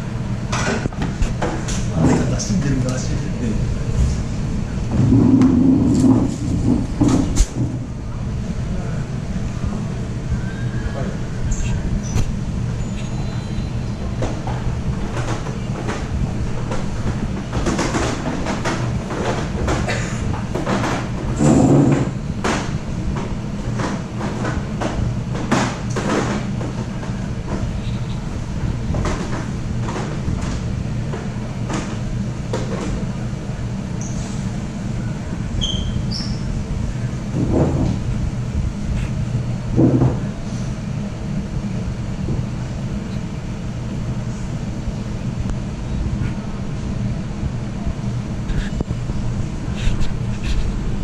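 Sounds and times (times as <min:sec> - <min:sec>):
low room hum: 0:00.0 - 0:51.0
knocks and clatter: 0:14.2 - 0:27.7, 0:28.9 - 0:33.0.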